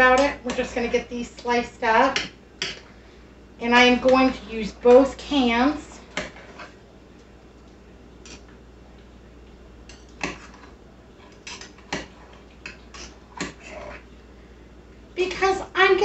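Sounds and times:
cutlery scraping baking pan: 9.9 - 14.0.

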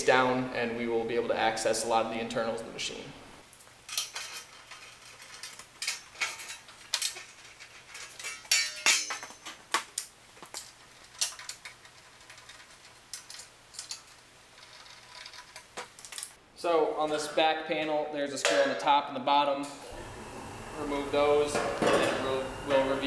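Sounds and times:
metal tools clinking: 3.8 - 16.4.

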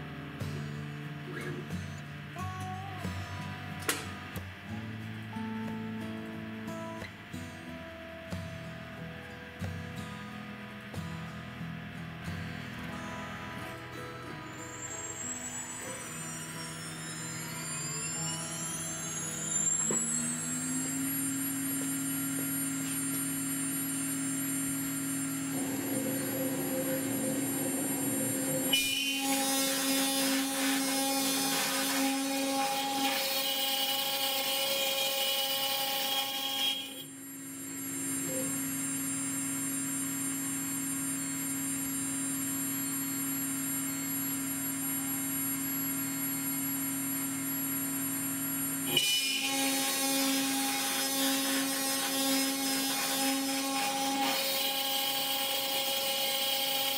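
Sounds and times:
router spindle whine: 13.2 - 56.9.

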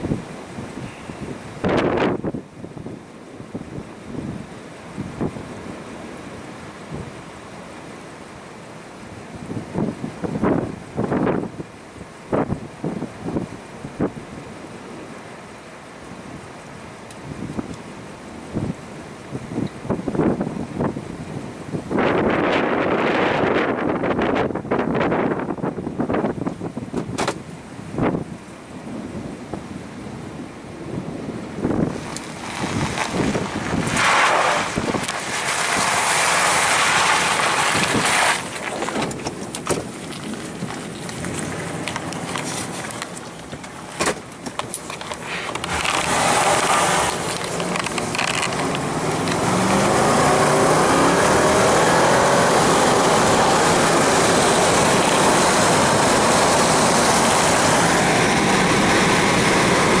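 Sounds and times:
road noise: 0.0 - 60.0
rough noise with knocks: 26.9 - 27.4
pickup truck engine: 31.6 - 60.0.

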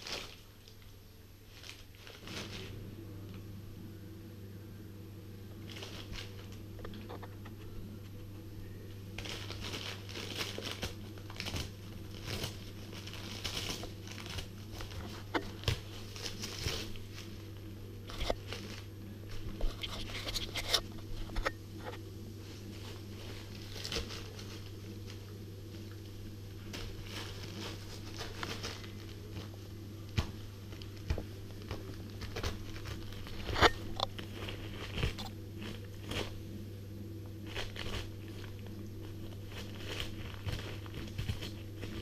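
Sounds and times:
dog tearing crinkly packet: 0.0 - 0.9, 1.5 - 2.8, 5.6 - 7.4, 9.1 - 21.9, 22.7 - 24.8, 26.6 - 29.6, 30.2 - 36.4, 37.4 - 42.0.

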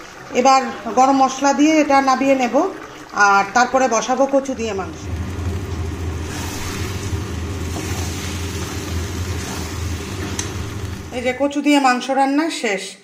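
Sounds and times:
low mechanical hum: 4.4 - 11.6.

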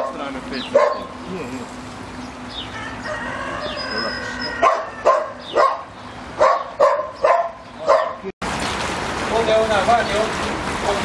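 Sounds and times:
dog barking: 0.0 - 1.1, 4.6 - 8.3.

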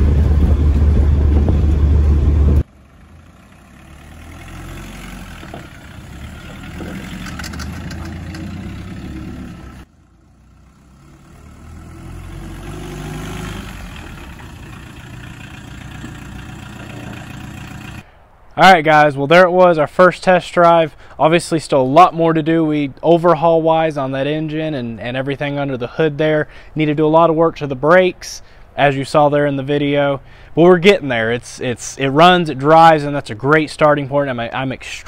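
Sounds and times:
truck engine running: 0.0 - 18.0.

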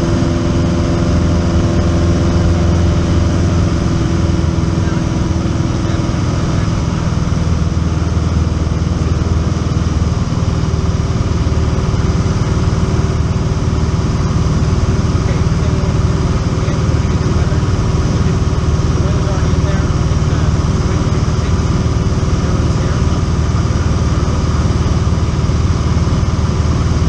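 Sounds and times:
light airplane engine droning: 0.0 - 27.0.

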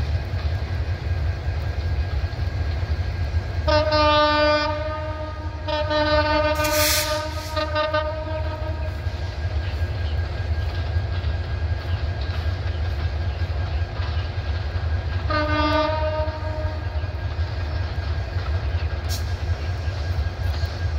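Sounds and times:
diesel train rumbling: 0.0 - 20.9
train horn blast: 3.6 - 9.0, 15.2 - 17.1.

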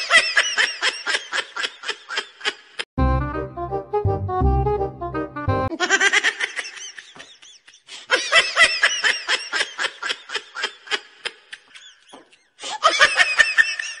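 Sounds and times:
high-pitched laughter: 5.7 - 14.0.

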